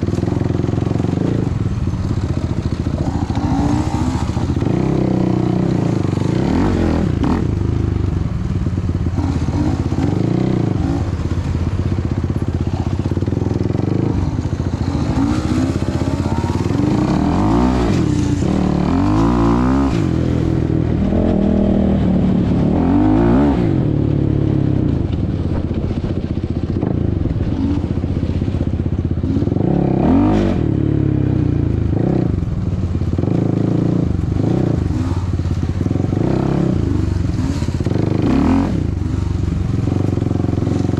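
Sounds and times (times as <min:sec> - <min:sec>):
quad engine revving: 0:00.0 - 0:40.9.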